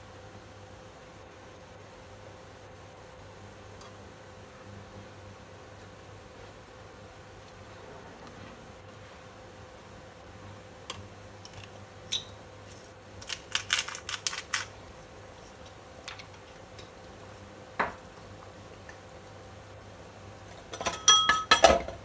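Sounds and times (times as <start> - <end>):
steady low hum: 0.0 - 22.0
pepper grinder clicks: 10.9 - 14.7.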